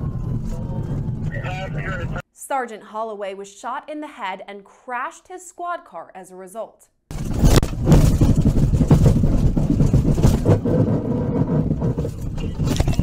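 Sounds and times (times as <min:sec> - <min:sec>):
car crash rumble: 0:07.1 - 0:13.0
knocks and bangs: 0:07.1 - 0:13.0.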